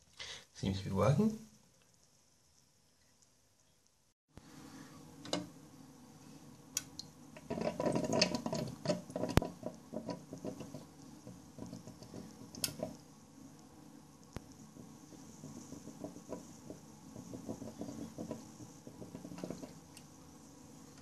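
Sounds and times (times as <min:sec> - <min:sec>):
steady low hum: 0:04.4 - 0:21.0
water trickling into cistern: 0:06.8 - 0:13.0, 0:14.8 - 0:20.0.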